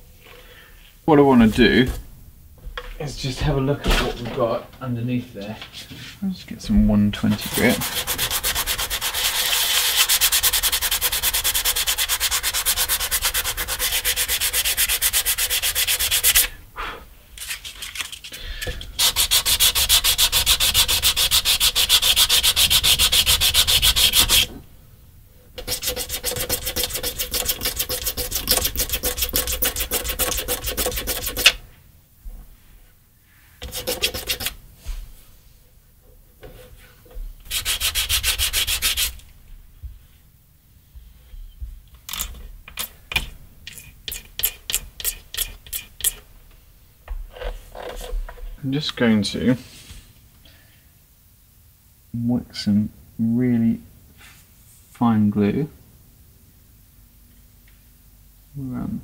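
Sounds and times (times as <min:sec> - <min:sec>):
sandpaper sanding wood: 0:07.3 - 0:16.6, 0:19.0 - 0:24.5, 0:25.6 - 0:31.6, 0:33.6 - 0:34.6, 0:37.5 - 0:39.2, 0:43.2 - 0:46.2.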